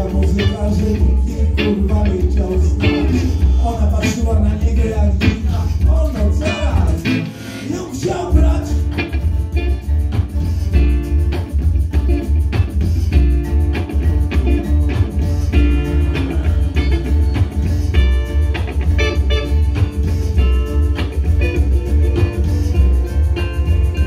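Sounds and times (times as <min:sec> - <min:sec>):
loud low bass: 0:00.0 - 0:07.3, 0:08.3 - 0:24.0
acoustic guitar strumming: 0:00.0 - 0:24.0.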